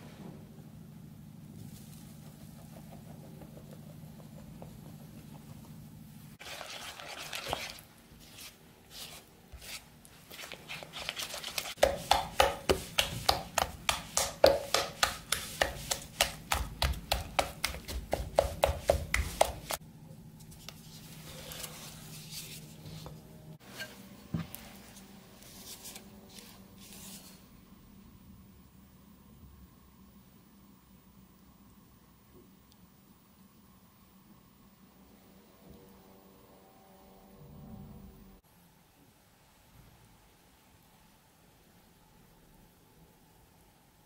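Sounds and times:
spatula scraping batter in bowl: 6.4s - 19.8s.

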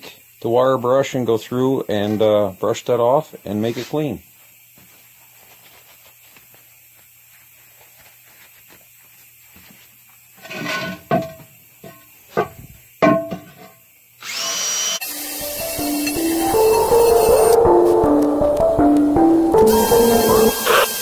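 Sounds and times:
drill spinning wire brush on rim: 14.2s - 17.6s, 19.7s - 21.0s
electronic music: 15.0s - 21.0s.

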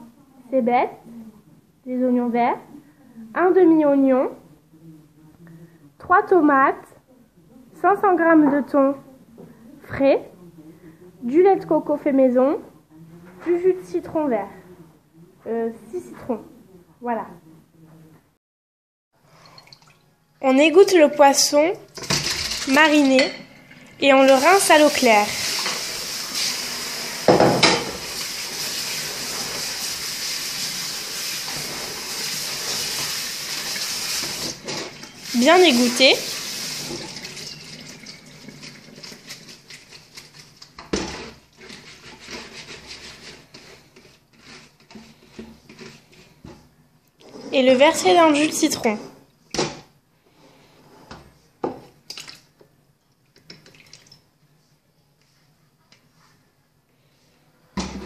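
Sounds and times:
tap water running into sink: 22.0s - 41.0s, 53.4s - 54.2s.

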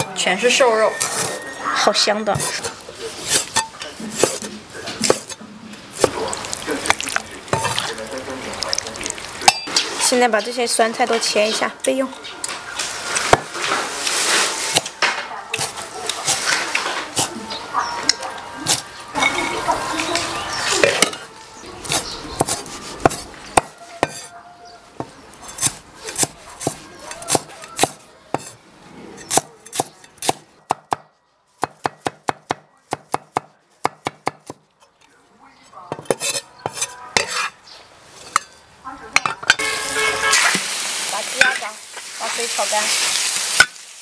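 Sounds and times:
metal spatula stirring in wok: 0.0s - 10.2s, 20.6s - 24.3s, 25.0s - 28.6s, 35.9s - 38.7s, 39.4s - 43.9s
food sizzling in a wok: 5.8s - 11.5s, 12.6s - 15.0s, 39.6s - 44.0s
cleaver chopping on a block: 29.3s - 34.6s.

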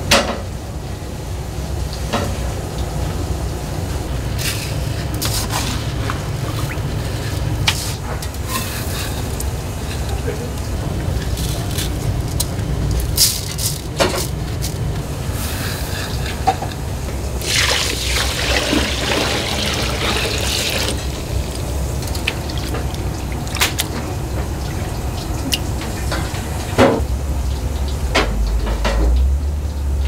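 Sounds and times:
steady low hum: 0.6s - 30.0s
water splashing onto rice: 17.4s - 25.8s.

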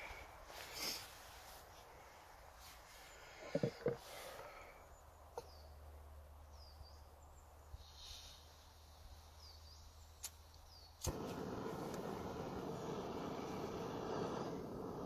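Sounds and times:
faint bird chirps: 2.9s - 11.0s
gas burner hissing: 11.0s - 15.0s.

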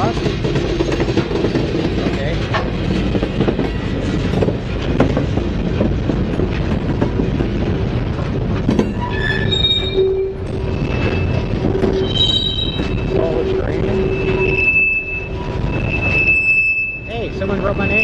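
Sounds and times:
train wheels clattering on rail: 0.0s - 16.4s
wheels squealing: 8.7s - 18.0s.

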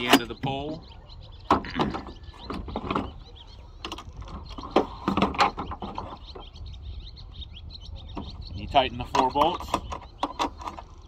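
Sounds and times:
metal clanks and knocks: 1.5s - 6.3s.

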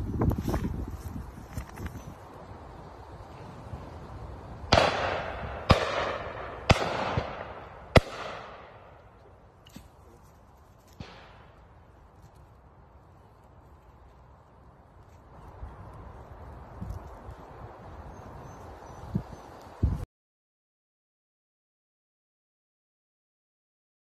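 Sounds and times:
shotgun shots with echo: 4.7s - 9.0s.

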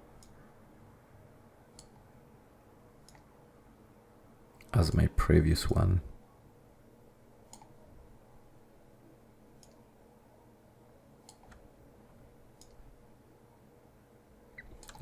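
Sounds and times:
faint computer mouse clicks: 0.2s - 0.4s, 1.7s - 2.0s, 3.0s - 3.3s, 7.5s - 7.8s, 9.6s - 9.8s, 11.2s - 11.6s, 12.6s - 12.8s.

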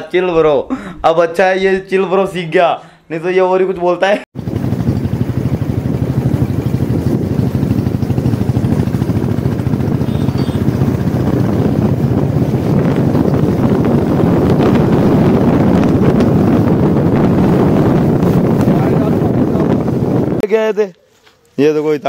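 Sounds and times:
moving vehicle drone: 4.4s - 20.4s
wind buffeting microphone: 4.4s - 20.5s.

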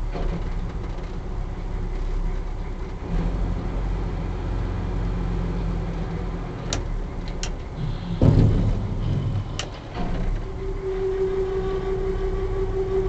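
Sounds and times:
boat engine low rumble: 0.0s - 13.0s
heavy thump: 7.8s - 10.5s.

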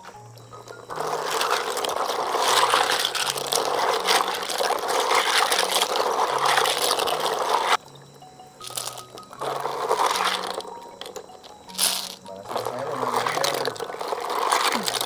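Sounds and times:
snail shells clattering together: 0.0s - 7.8s, 8.6s - 15.0s
water sloshing: 0.4s - 15.0s.

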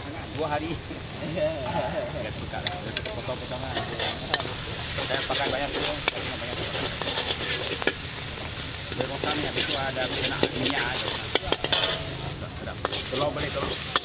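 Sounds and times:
noodles sizzling in a wok: 0.0s - 14.0s
spatula scraping a wok: 1.7s - 14.0s
spatula clinking on wok: 9.5s - 12.2s.

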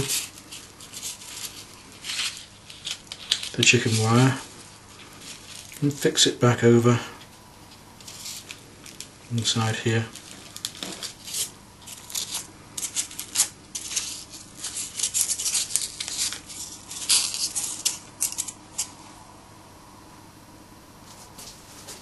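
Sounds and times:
wire scratching and rustling: 0.0s - 6.2s, 7.6s - 9.2s, 9.9s - 19.2s.

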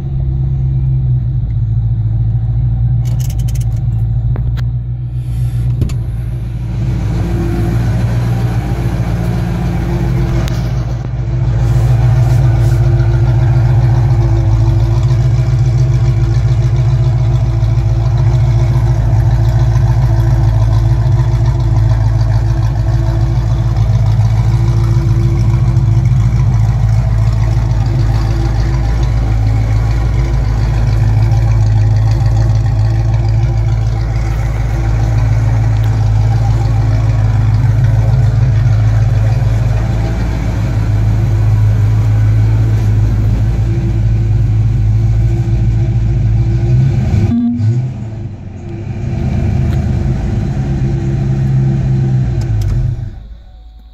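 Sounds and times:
car engine idling: 0.0s - 53.9s.

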